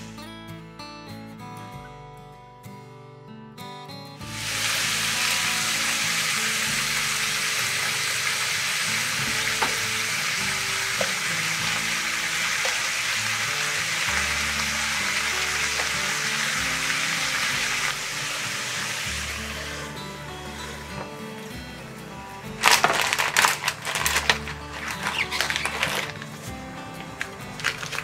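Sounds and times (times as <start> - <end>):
background music: 0.0 - 28.0
food sizzling in a frying pan: 4.2 - 21.5.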